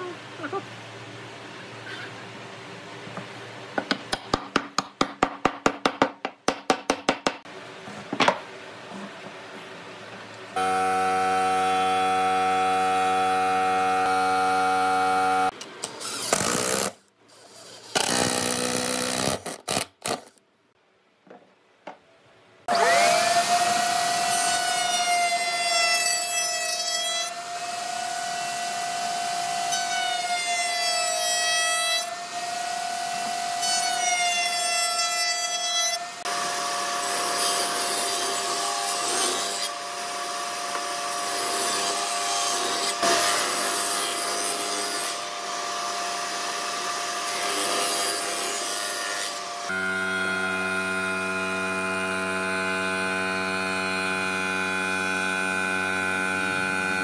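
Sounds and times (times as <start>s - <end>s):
loud high whine: 10.6s - 15.5s
machine motor running: 10.6s - 15.5s.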